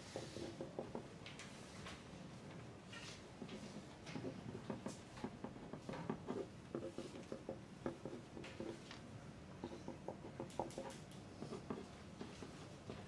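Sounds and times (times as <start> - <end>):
pencils writing on paper: 0.0 - 1.1, 3.0 - 9.0, 9.6 - 13.0
small taps and clicks: 9.6 - 11.8.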